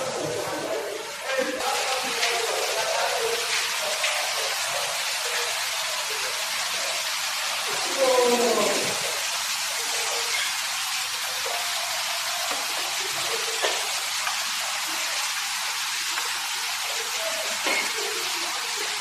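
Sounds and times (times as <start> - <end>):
faint voices murmuring: 0.0 - 10.9
water splashing down waterfall: 0.0 - 19.0.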